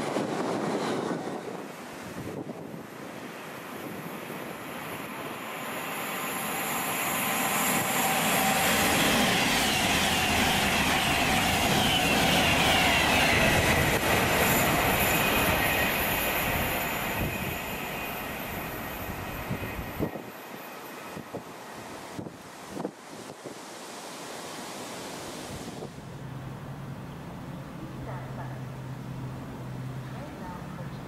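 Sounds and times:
train passing: 0.0 - 31.0.

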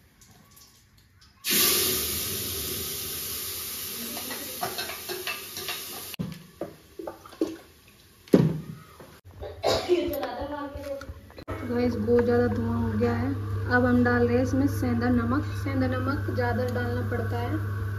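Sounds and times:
loud sizzle in hot pot: 1.4 - 6.2
kitchenware knocks and clatters: 4.2 - 7.6.

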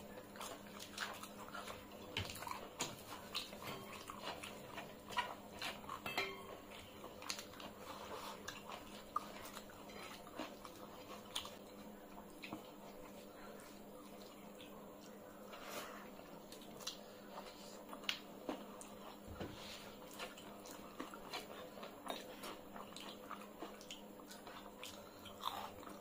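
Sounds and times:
wet chewing and lip smacking: 0.0 - 6.0.

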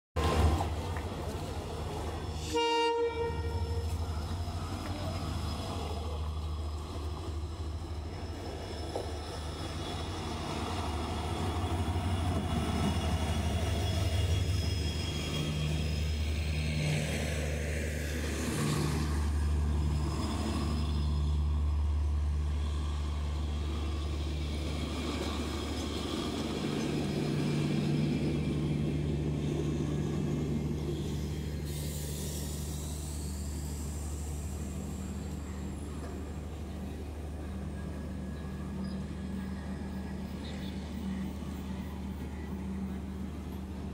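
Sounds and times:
diesel locomotive engine droning: 0.2 - 43.9
train coaches rumbling by: 0.2 - 43.9
locomotive horn blast: 2.4 - 4.0.

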